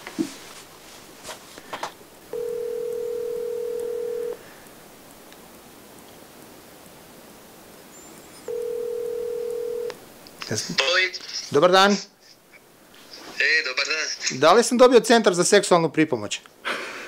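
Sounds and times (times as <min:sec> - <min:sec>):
phone ringback tone: 0:02.3 - 0:04.4, 0:08.5 - 0:10.0.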